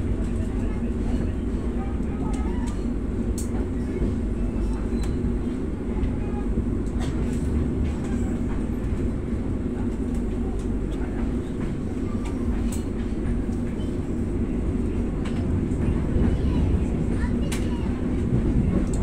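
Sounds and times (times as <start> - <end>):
train rumbling over tracks: 0.0 - 19.0
faint clicks: 18.8 - 19.0.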